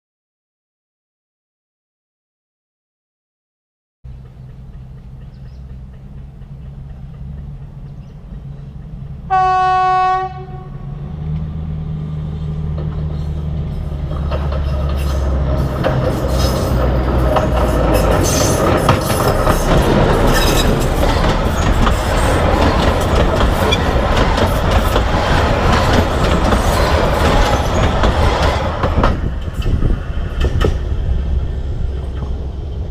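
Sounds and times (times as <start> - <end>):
train wheels clattering on rails: 4.1 - 10.4, 12.4 - 32.9
diesel engine rumble: 4.1 - 32.9
locomotive horn blast: 9.3 - 11.0.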